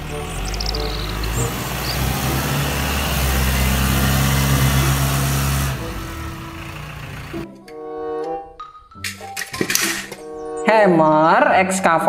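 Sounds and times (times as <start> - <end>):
forklift engine running: 0.0 - 7.5.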